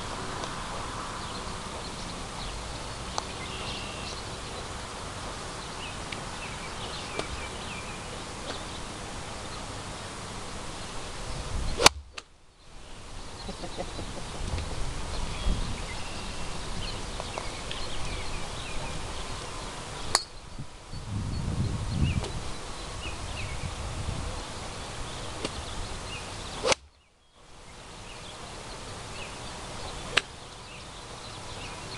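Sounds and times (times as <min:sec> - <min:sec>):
outdoor background noise: 0:00.0 - 0:31.9
golf club striking ball: 0:11.8 - 0:12.3, 0:26.6 - 0:26.9.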